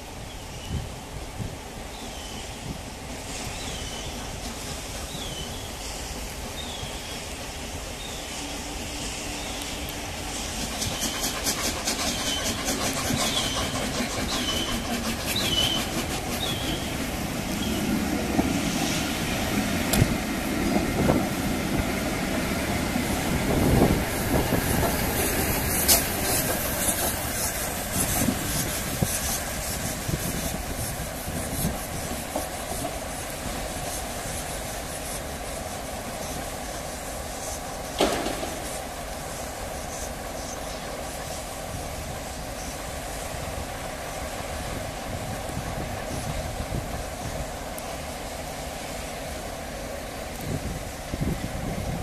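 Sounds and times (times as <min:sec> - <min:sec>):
steam hissing: 0:00.0 - 0:52.0
train wheels clicking over rail joints: 0:03.1 - 0:06.6, 0:08.8 - 0:52.0.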